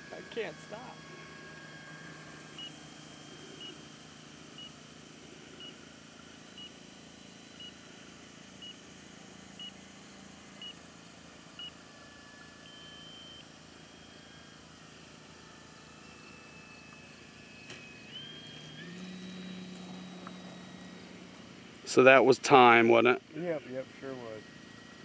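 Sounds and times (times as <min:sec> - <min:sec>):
long electronic tone: 0:11.6 - 0:23.2.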